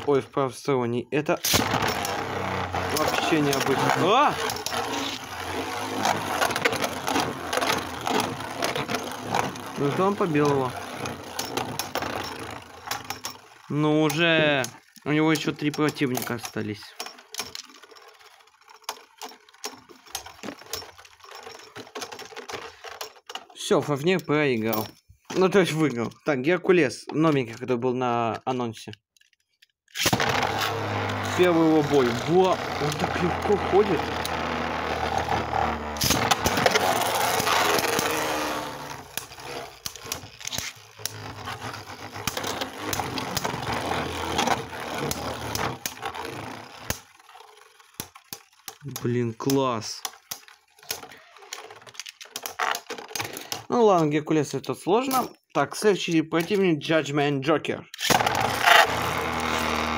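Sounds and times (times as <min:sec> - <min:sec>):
ripcord launcher pulled: 0:01.4 - 0:18.0, 0:29.9 - 0:49.1, 0:58.0 - 0:59.9
spinning tops whirring: 0:01.4 - 0:22.9, 0:30.0 - 0:53.5, 0:58.0 - 0:59.9.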